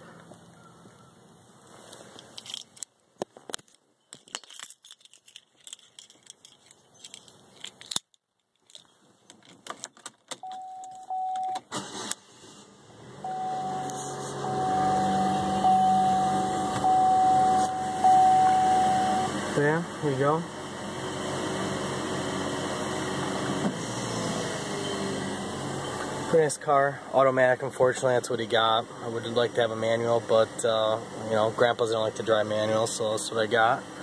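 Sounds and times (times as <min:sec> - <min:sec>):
handling clicks and rattles: 0:02.0 - 0:11.6
car keys jangling: 0:02.2 - 0:02.9, 0:04.2 - 0:12.2
dashboard warning chime: 0:10.4 - 0:11.7, 0:13.2 - 0:19.4
low hum: 0:13.1 - 0:19.6.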